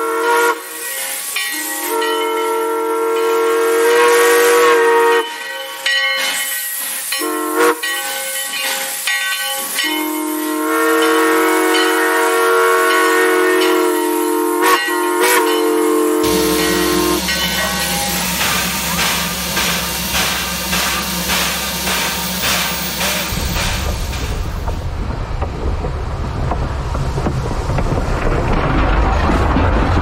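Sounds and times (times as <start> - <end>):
steam locomotive whistle blasts: 0.0 - 8.5, 9.6 - 23.4
steam hissing: 0.0 - 25.1.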